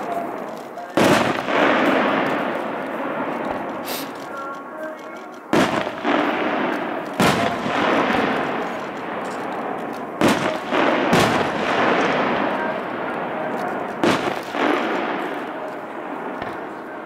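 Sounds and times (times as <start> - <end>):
firework shells bursting: 0.0 - 16.8
continuous background din: 0.0 - 17.0.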